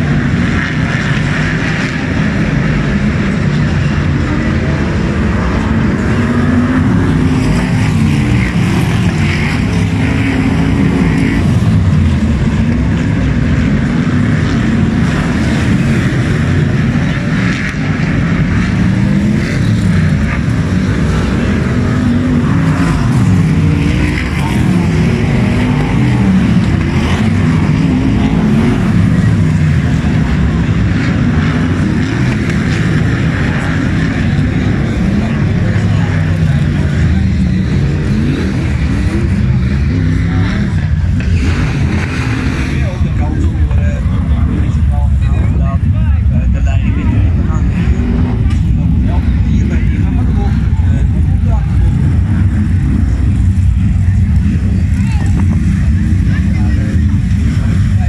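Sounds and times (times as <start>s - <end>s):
racing car engines revving: 0.0s - 58.0s.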